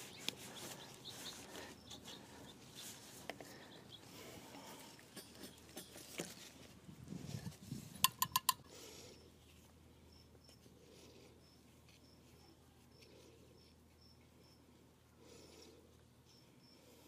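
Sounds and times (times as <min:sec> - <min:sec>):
hands handling plastic pipe: 0:07.4 - 0:08.7.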